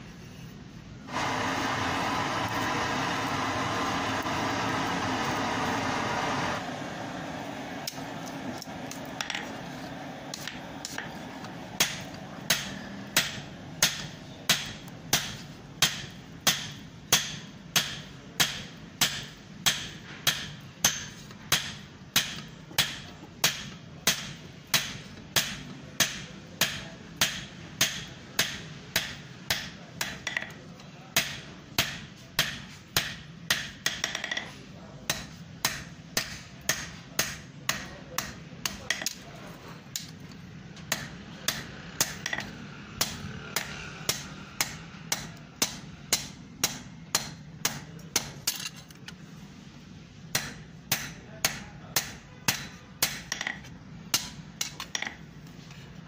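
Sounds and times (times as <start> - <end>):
forge blower rushing: 1.0 - 14.9
hammer striking iron on anvil: 11.8 - 34.5, 35.1 - 39.2, 40.8 - 48.8, 50.3 - 55.2.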